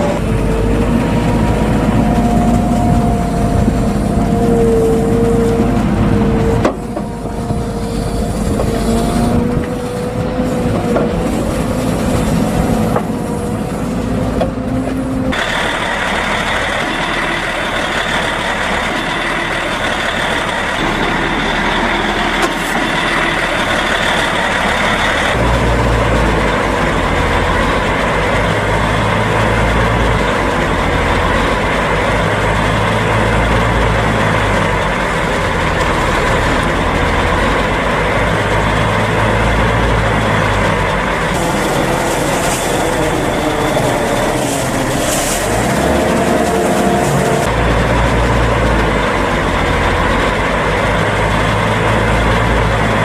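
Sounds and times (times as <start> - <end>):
truck engine: 0.0 - 53.0
wheel loader engine: 0.0 - 53.0.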